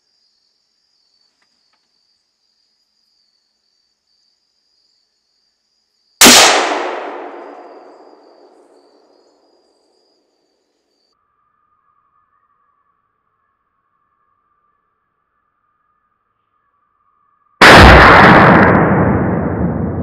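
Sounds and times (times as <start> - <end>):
rifle shot: 6.2 - 8.9, 17.6 - 20.0.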